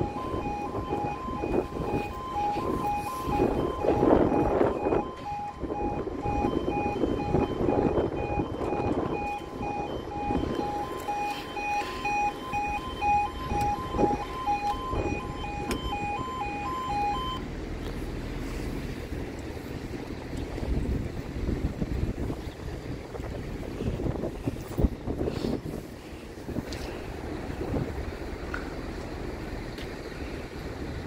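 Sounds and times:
two-tone electronic crossing alarm: 0:00.0 - 0:17.4.

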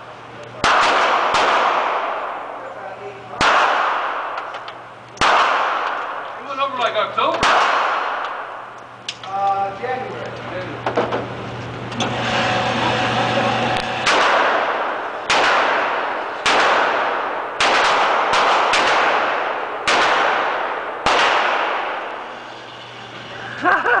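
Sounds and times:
handgun shots echoing indoors: 0:00.6 - 0:02.3, 0:03.4 - 0:06.2, 0:07.4 - 0:08.6, 0:14.0 - 0:22.1.

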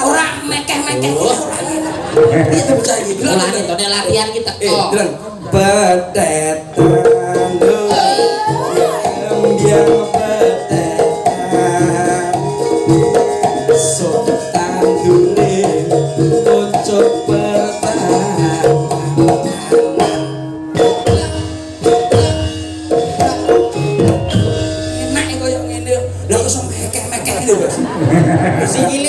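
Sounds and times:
hand drum patterns: 0:00.0 - 0:27.6
band playing: 0:00.0 - 0:29.0
ringing struck melodic notes: 0:06.8 - 0:27.5.

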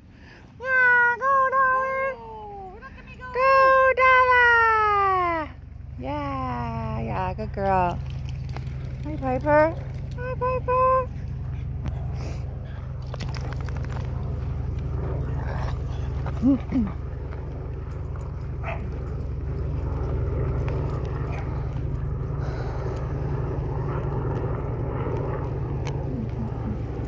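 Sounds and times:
steady low rumble: 0:00.0 - 0:27.0
dog barking: 0:18.6 - 0:18.9.

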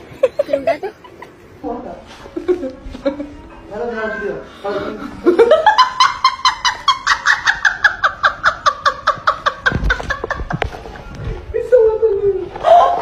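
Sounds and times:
person cackling laugh: 0:05.2 - 0:11.0.

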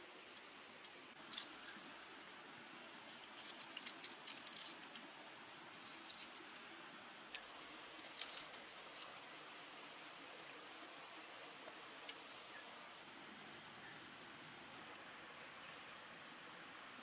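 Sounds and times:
soft crisp crackles and rustles: 0:00.0 - 0:13.1.

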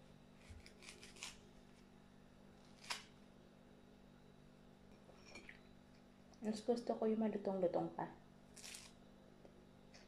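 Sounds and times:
knife cutting through fruit: 0:00.4 - 0:01.8.

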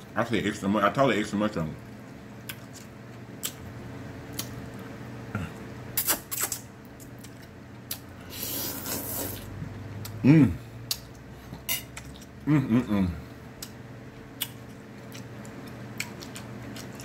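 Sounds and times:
chewing with wet mouth clicks: 0:02.0 - 0:03.7, 0:04.3 - 0:04.9, 0:10.9 - 0:11.3, 0:11.9 - 0:12.4, 0:13.6 - 0:17.0
slurping noodles: 0:08.3 - 0:09.5
person humming mm: 0:10.2 - 0:10.7, 0:12.4 - 0:13.3.

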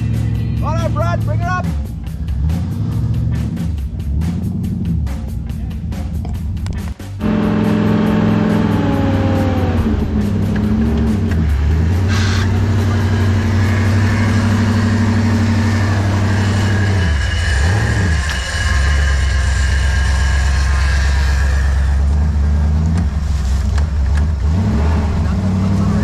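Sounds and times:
engine running under load: 0:07.2 - 0:26.0.

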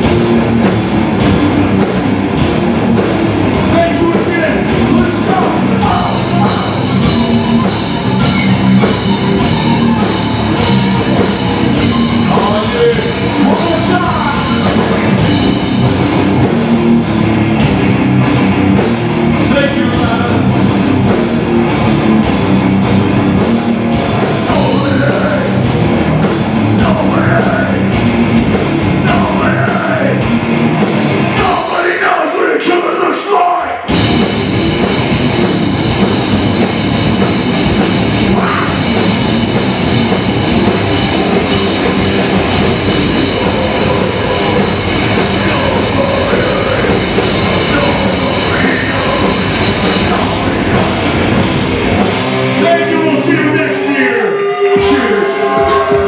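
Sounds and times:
bass guitar: 0:00.0 - 0:31.9, 0:33.8 - 0:56.0
distorted electric guitars: 0:00.0 - 0:32.0, 0:33.8 - 0:56.0
drum kit: 0:00.0 - 0:32.0, 0:33.8 - 0:56.0
vocals: 0:03.6 - 0:15.9, 0:19.4 - 0:21.0, 0:24.3 - 0:34.2, 0:37.4 - 0:39.8, 0:41.4 - 0:56.0.

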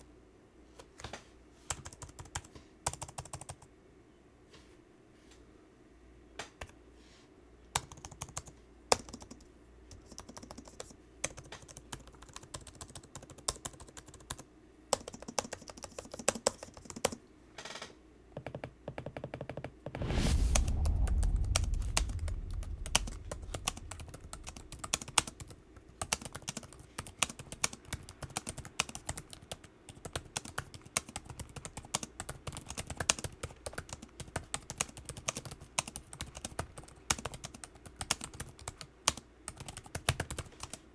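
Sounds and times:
laptop keyboard typing: 0:01.7 - 0:03.7, 0:07.7 - 0:17.2, 0:18.4 - 0:20.0, 0:24.0 - 0:40.9
loud low rumble: 0:20.0 - 0:25.3.

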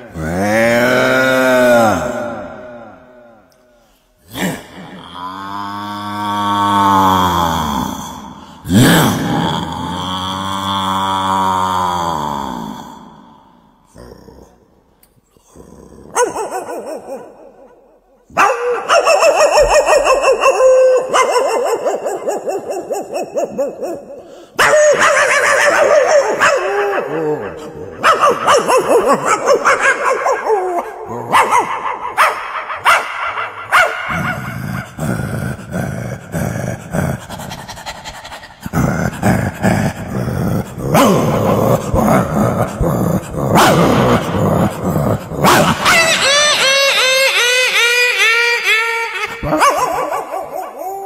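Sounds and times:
dog barking and yelping: 0:16.1 - 0:17.7, 0:18.3 - 0:27.2, 0:28.0 - 0:34.5, 0:49.2 - 0:51.0
dog growling: 0:34.0 - 0:46.1.

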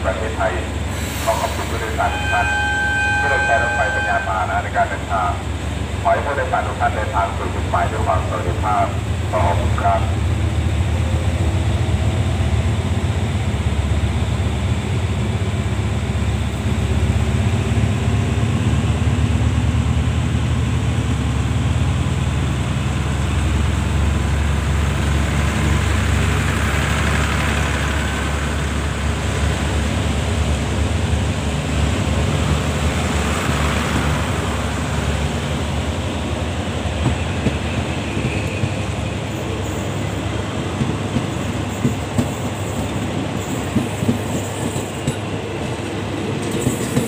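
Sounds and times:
locomotive engine rumbling: 0:00.0 - 0:47.0.

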